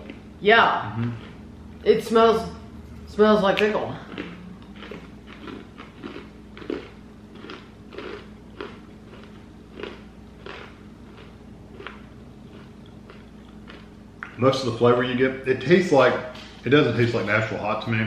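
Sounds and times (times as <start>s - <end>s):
crunchy chewing: 4.0s - 14.4s.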